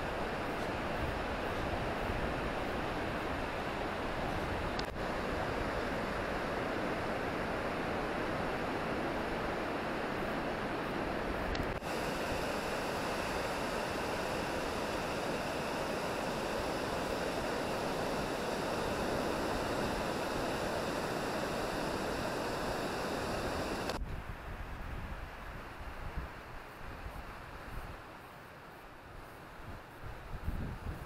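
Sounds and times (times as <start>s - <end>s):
surf washing up a beach: 0.0s - 24.4s.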